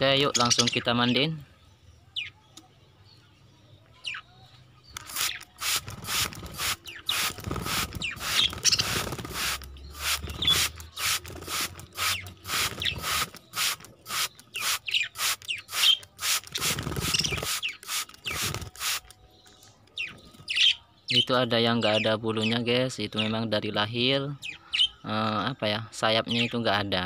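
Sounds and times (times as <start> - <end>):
budgies chirping: 0.0 - 1.4, 3.4 - 26.8
spray bottle squirting water: 5.0 - 19.1.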